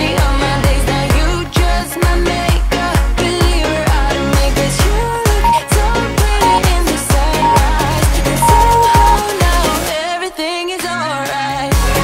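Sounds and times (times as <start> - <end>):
electronic dance pop music: 5.4 - 5.7, 6.4 - 6.8, 7.4 - 9.3.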